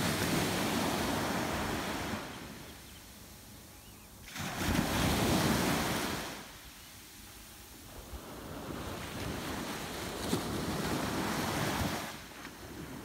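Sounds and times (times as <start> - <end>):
small waves washing ashore: 0.0 - 3.6, 4.2 - 13.0.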